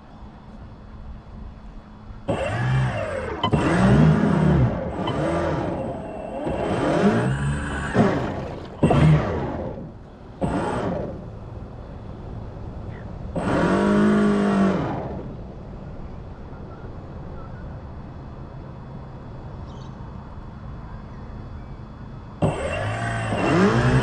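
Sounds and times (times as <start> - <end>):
small electric motor whirring: 2.3 - 11.4, 13.3 - 15.4, 22.4 - 24.0.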